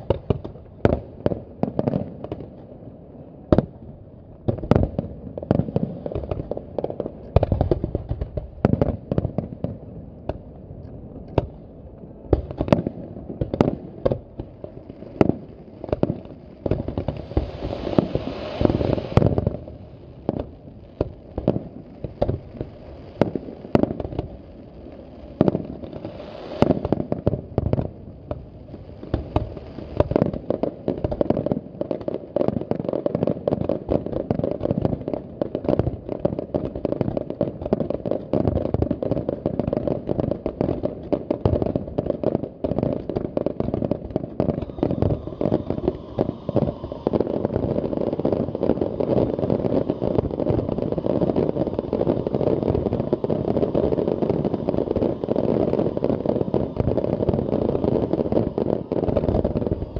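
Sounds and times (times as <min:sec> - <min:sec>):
firework hissing crackle: 0:00.0 - 0:59.9.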